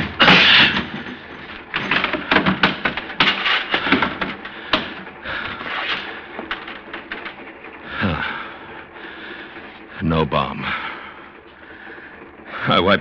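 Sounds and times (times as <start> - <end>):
wood knocking and cracking: 1.8 - 5.1.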